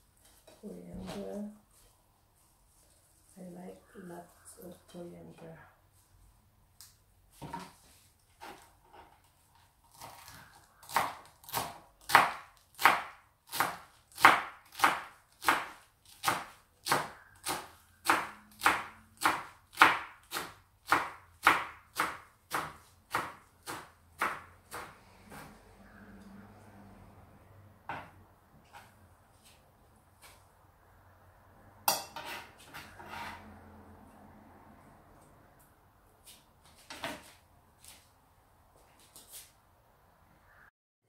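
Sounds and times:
knife chopping on cutting board: 0:10.9 - 0:25.5.

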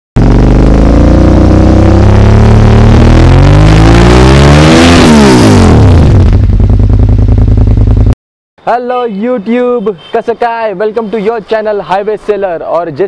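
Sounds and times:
engine-like revving sound effect: 0:00.2 - 0:07.3.

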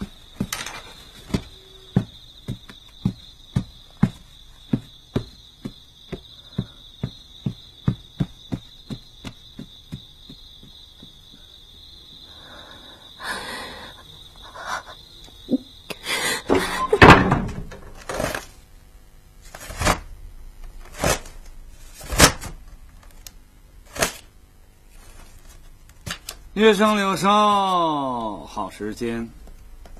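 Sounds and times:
hard knocks and thunks: 0:00.3 - 0:11.1.

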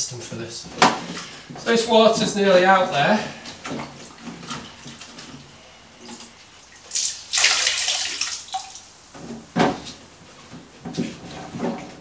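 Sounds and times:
water splashing into toilet: 0:06.0 - 0:08.9.

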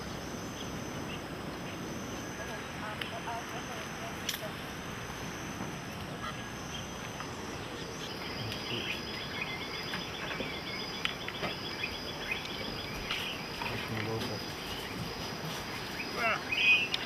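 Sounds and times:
background hiss: 0:00.0 - 0:17.0
fast pulsing insect chirp: 0:00.0 - 0:17.0
insects chirring: 0:00.0 - 0:17.0.

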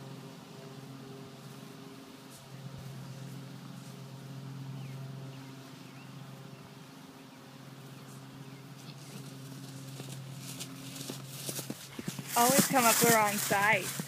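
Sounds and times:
low mechanical hum: 0:00.0 - 0:14.0.

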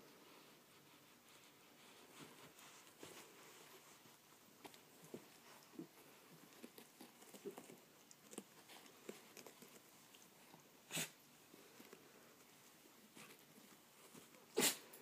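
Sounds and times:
puppy rustling and snuffling: 0:00.0 - 0:15.0
dog snort: 0:10.9 - 0:11.2, 0:14.5 - 0:15.0.

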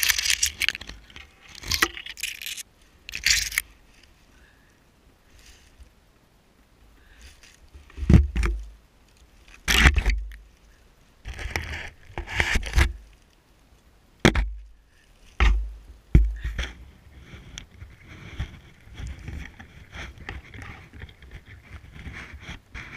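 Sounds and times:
hand rustling dry leaves: 0:00.0 - 0:04.3
dull thump: 0:14.2 - 0:14.6, 0:15.4 - 0:16.8.

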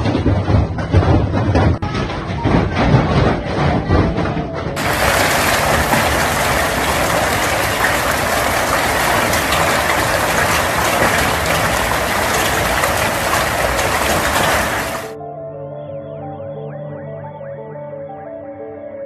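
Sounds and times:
hail pelting roof and ground: 0:00.0 - 0:15.2.

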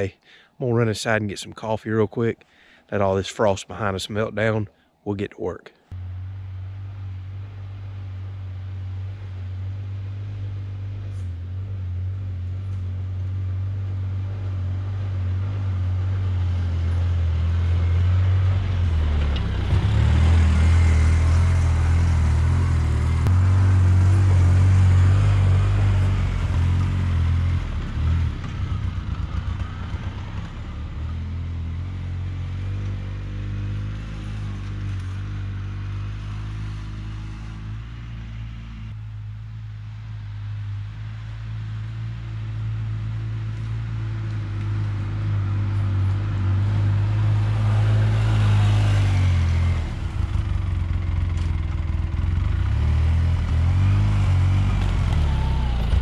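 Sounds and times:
utility vehicle engine hum: 0:05.8 - 0:56.0.

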